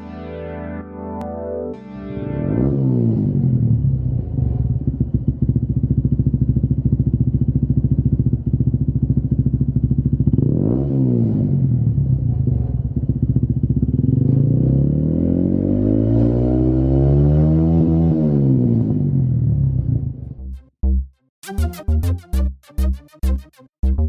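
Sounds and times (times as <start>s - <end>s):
motorcycle engine idling and revving: 2.5s - 20.4s.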